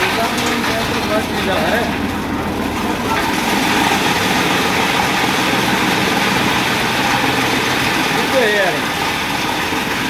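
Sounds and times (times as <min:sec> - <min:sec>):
chaff cutter blades chopping fodder: 0:02.9 - 0:10.0.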